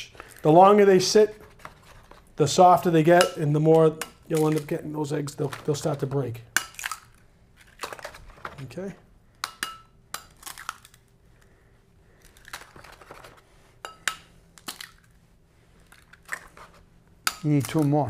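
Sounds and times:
eggshells cracking: 4.1s - 4.9s, 6.6s - 8.4s, 9.4s - 13.3s, 14.2s - 15.2s, 15.8s - 16.7s, 17.3s - 18.0s.

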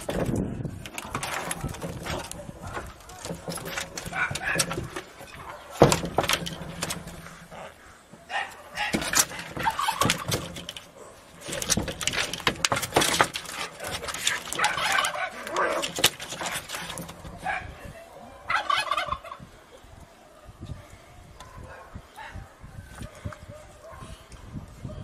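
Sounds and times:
cats scuffling on metal roof: 0.0s - 17.8s.

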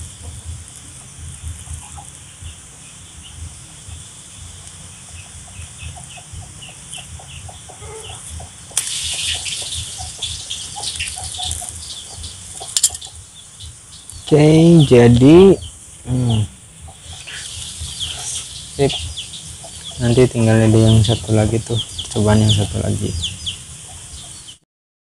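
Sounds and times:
chickens clucking: 0.0s - 24.6s.

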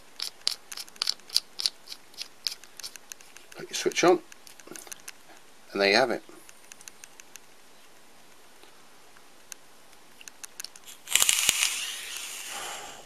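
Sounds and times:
handling clicks: 6.4s - 7.5s, 9.2s - 11.7s
vape coil sizzling and crackling: 10.6s - 13.0s.

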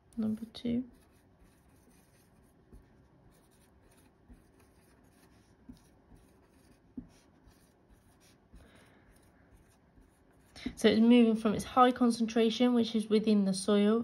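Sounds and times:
marker scratching on paper: 0.9s - 10.7s.

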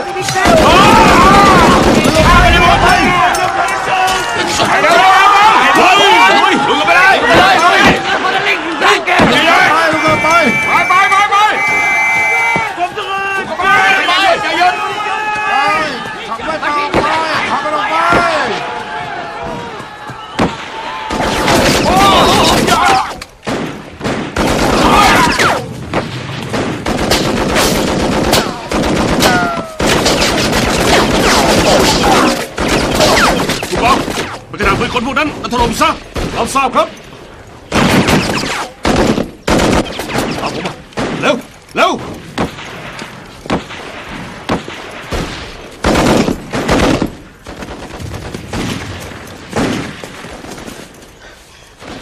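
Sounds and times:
rifle and machine-gun fire: 0.4s - 3.1s, 20.4s - 34.9s, 37.7s - 41.4s, 42.0s - 50.9s.

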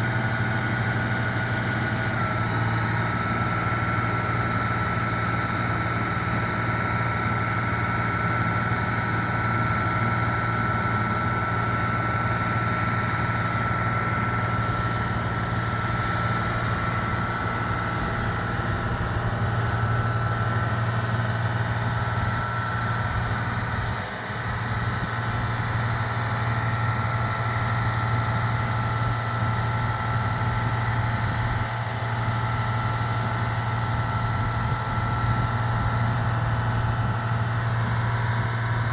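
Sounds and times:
fire truck engine running: 0.0s - 38.9s
hydraulic high whine: 0.0s - 38.9s.

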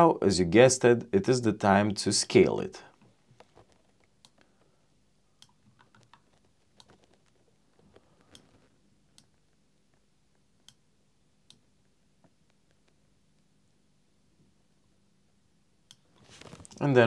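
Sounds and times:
computer mouse and keyboard clicks: 5.4s - 9.4s.

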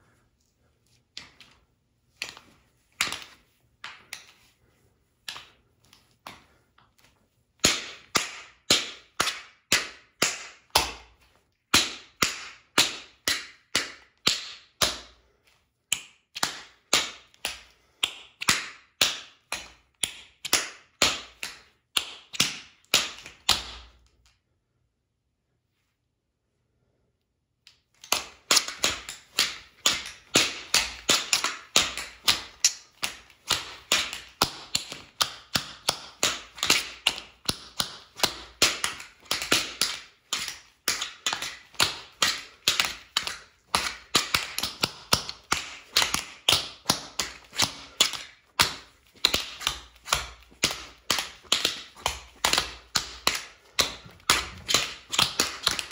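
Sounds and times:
tap shoes on hard floor: 28.0s - 55.9s.

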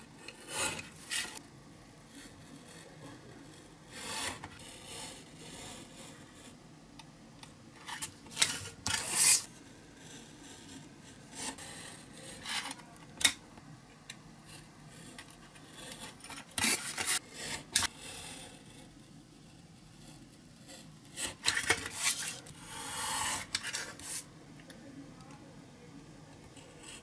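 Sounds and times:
craft knife scratching card: 0.3s - 1.4s, 3.9s - 6.2s, 7.8s - 9.5s, 14.5s - 18.1s, 20.7s - 24.3s.

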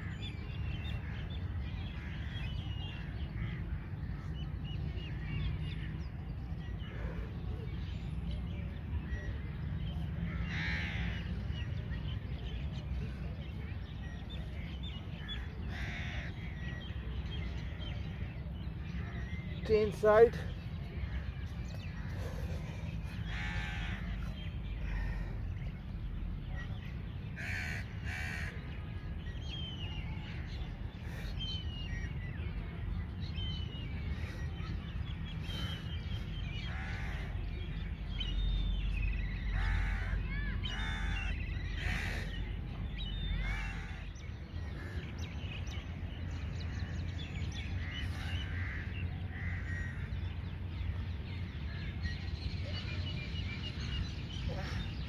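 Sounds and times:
small birds chirping: 0.0s - 55.0s
crows cawing: 10.3s - 11.2s, 23.3s - 24.1s, 27.4s - 28.5s, 39.6s - 42.4s, 43.4s - 44.0s, 48.1s - 50.1s.

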